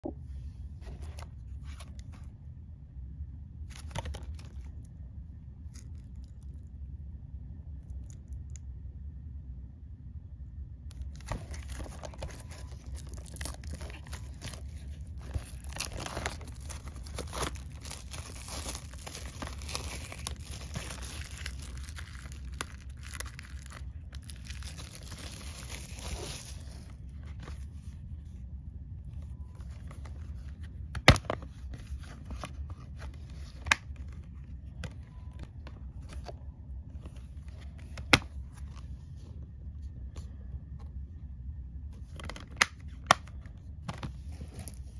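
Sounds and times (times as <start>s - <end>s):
plastic shrink-wrap crinkling: 10.9s - 26.9s.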